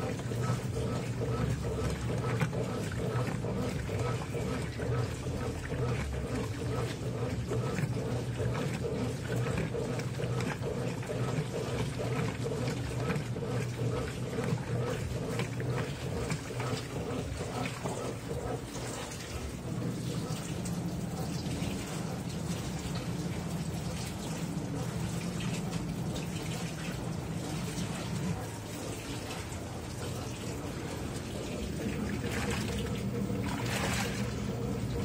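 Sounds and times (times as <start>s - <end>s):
drum tumbling wet laundry: 0.0s - 35.0s
washer agitator sloshing water: 0.0s - 35.0s
washing machine motor hum: 0.0s - 35.0s.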